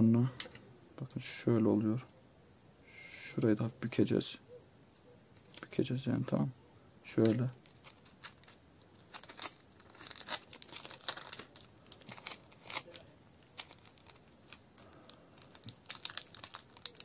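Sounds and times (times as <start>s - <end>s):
plastic film crinkling: 7.0s - 17.0s.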